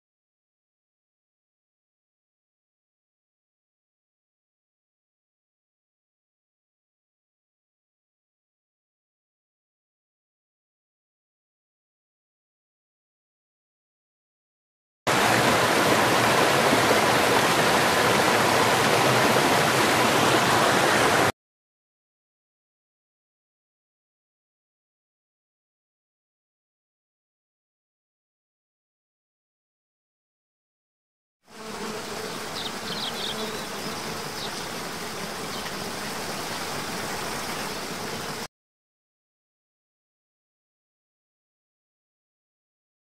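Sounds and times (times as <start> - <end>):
stream flowing over rocks: 15.1 - 21.3
waterfall rushing: 15.1 - 21.3.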